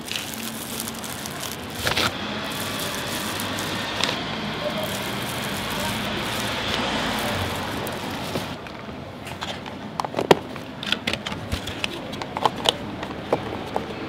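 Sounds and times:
hiss of flame or sizzling: 0.0 - 8.6.

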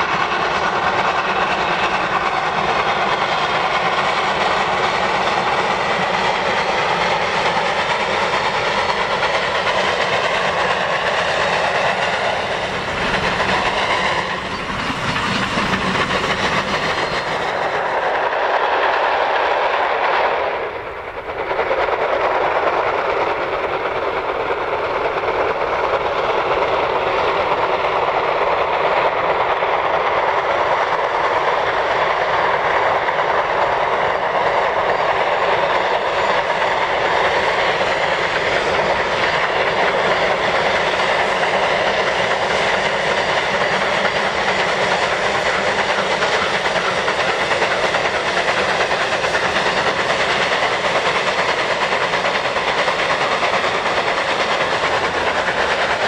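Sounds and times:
steam locomotive working hard: 0.0 - 56.0.

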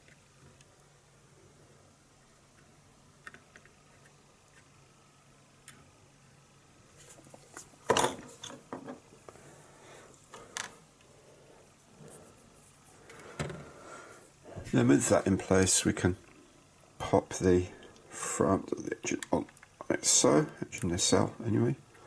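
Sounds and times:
plastic parts clicking and tapping: 2.5 - 4.7.

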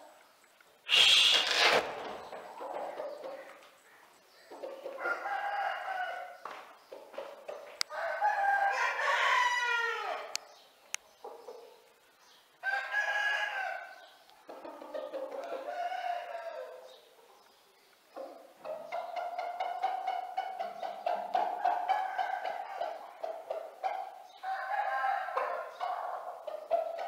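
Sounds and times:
roosters crowing: 0.9 - 2.2, 4.9 - 6.4, 7.8 - 10.4, 12.6 - 14.1, 15.0 - 16.9, 21.5 - 23.1, 23.8 - 27.0.

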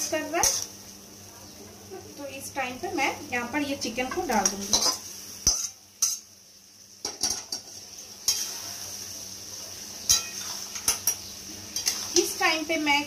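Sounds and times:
food sizzling in oil: 0.0 - 13.0
metal spatula scraping a pan: 0.4 - 0.7, 4.4 - 6.2, 7.2 - 8.9, 10.1 - 12.4.

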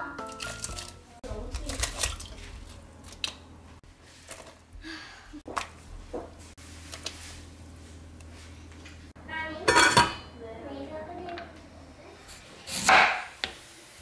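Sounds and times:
soft splashes in water: 0.6 - 2.8.

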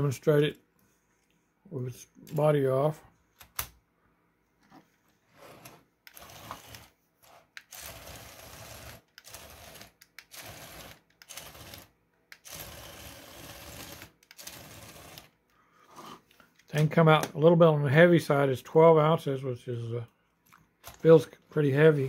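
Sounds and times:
small gear motor whirring: 6.1 - 15.3.

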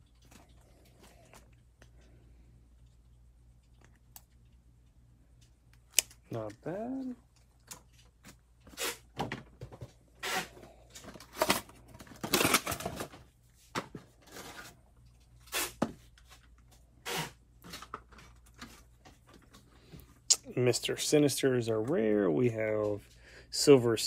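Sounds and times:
cardboard and plastic packaging rustling: 6.2 - 16.9, 17.6 - 20.2.

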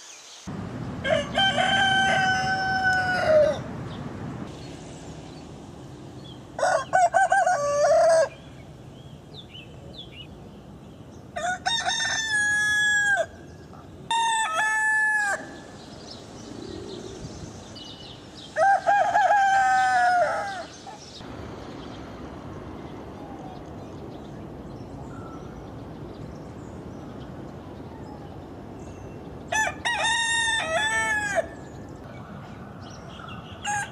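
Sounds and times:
roosters crowing: 1.0 - 3.9, 6.5 - 8.6, 11.4 - 13.5, 14.1 - 15.9, 18.4 - 21.0, 29.4 - 31.8, 33.6 - 33.9.

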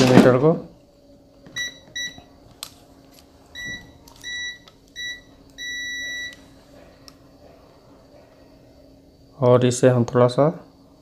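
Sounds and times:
multimeter beeps: 1.6 - 2.3, 3.6 - 6.5.

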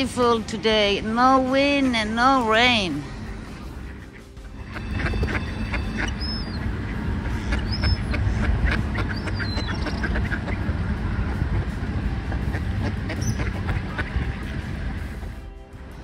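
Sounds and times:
steady low rumble: 0.0 - 16.0
ducks quacking: 3.1 - 15.4
high falling duck calls: 3.6 - 10.8, 12.3 - 14.5.

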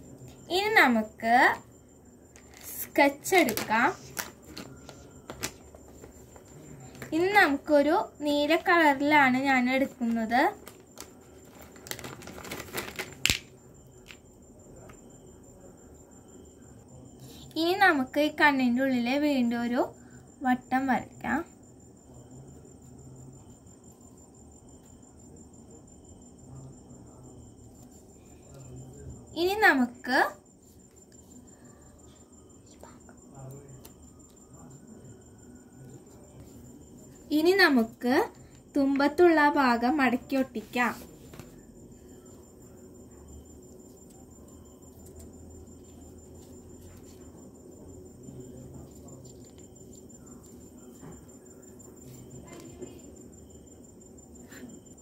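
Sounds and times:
cricket trilling: 0.0 - 55.0
paper rustling and folding: 2.4 - 7.2, 10.5 - 13.5, 48.9 - 51.0.

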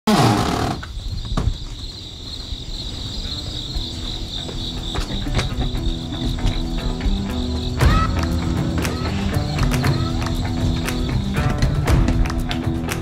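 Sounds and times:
insects trilling: 0.1 - 13.0.

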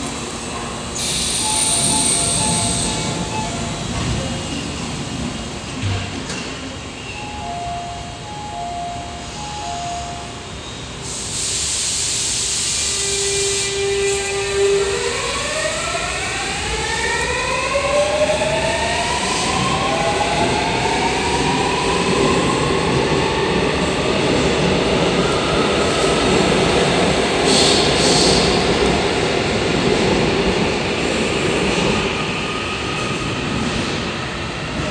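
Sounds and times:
air hiss: 0.9 - 3.0, 11.0 - 14.4.

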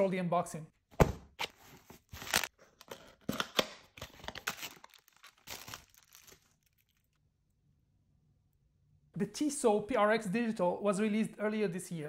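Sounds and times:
plastic packaging crinkling and tearing: 1.5 - 7.2.

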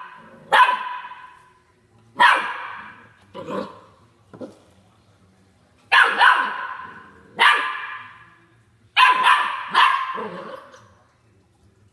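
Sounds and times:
puppy barking: 0.0 - 1.4, 2.2 - 3.8, 5.9 - 8.2, 9.0 - 10.7.

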